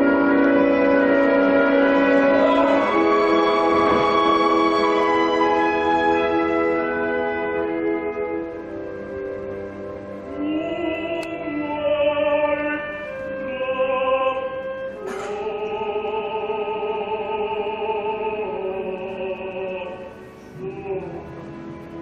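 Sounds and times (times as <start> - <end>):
opera voice singing with vibrato: 0.0 - 7.1, 10.2 - 22.0
orchestra playing: 0.0 - 16.2.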